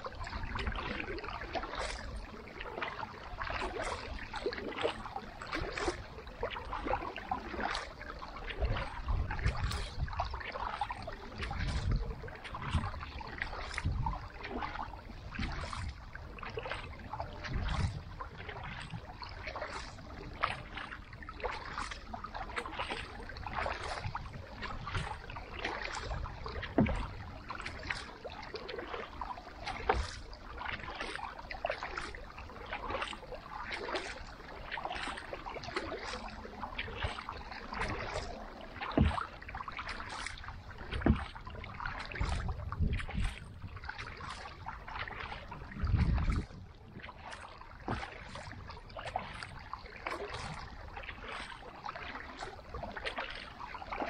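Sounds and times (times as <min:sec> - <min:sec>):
kayak paddle stroking through water: 0:00.0 - 0:54.0
water splashes and drips: 0:00.0 - 0:54.0
low knock of paddle: 0:26.6 - 0:27.2, 0:38.8 - 0:39.3.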